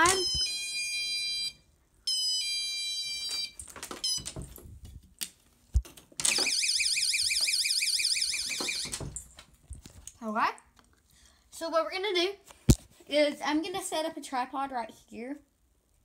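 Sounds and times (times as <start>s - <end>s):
door alarm chime: 0.0s - 4.5s, 6.2s - 9.2s
warbling electronic alarm tone: 6.3s - 9.0s.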